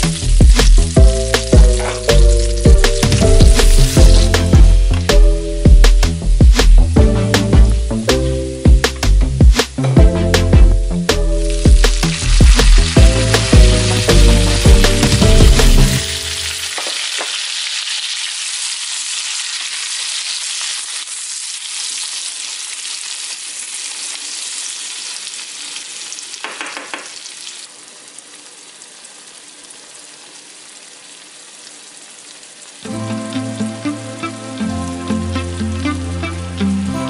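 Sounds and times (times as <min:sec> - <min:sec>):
vegetables sizzling in oil: 0:00.0 - 0:05.2, 0:10.9 - 0:37.0
wooden spatula stirring pan: 0:01.6 - 0:02.5.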